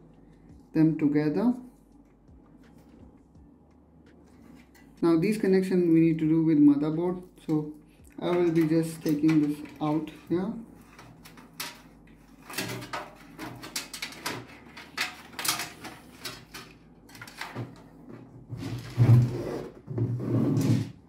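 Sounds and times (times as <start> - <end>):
cables clicking and rustling: 6.8 - 18.9
rubbing and knocking: 8.2 - 21.0.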